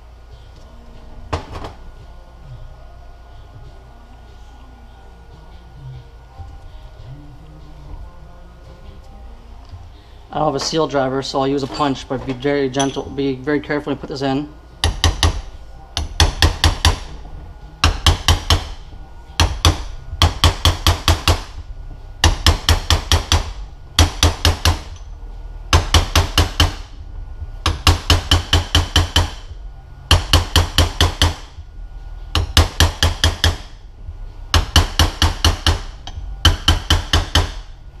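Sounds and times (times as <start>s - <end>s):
hammer tapping on metal punch: 14.8s - 17.1s, 17.8s - 18.8s, 19.4s - 21.6s, 22.2s - 25.1s, 25.7s - 26.9s, 27.6s - 29.5s, 30.1s - 31.6s, 32.3s - 33.7s, 34.5s - 37.7s.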